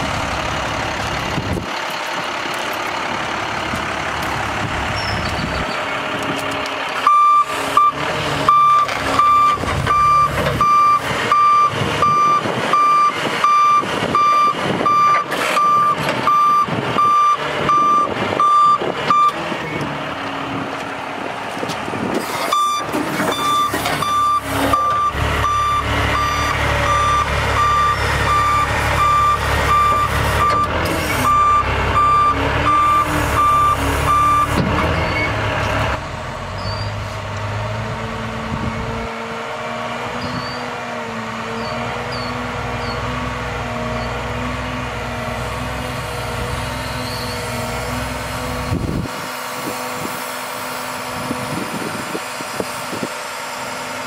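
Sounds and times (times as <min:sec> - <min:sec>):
diesel engine rumble: 0:00.0 - 0:54.0
motion alarm beeping: 0:22.6 - 0:30.7.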